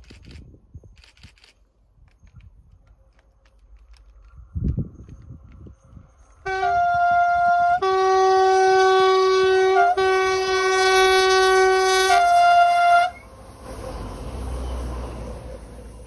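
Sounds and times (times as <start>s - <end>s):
train running noise: 0.0s - 16.0s
locomotive two-tone horn: 6.4s - 15.2s.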